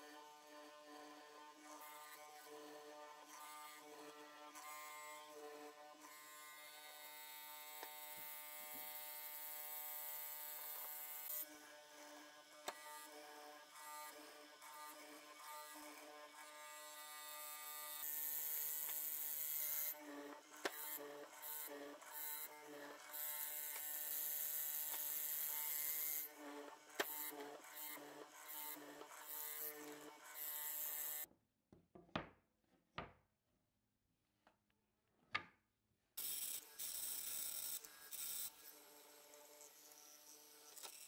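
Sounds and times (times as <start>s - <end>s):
mortiser motor cutting wood: 0.2s - 31.3s, 36.2s - 41.0s.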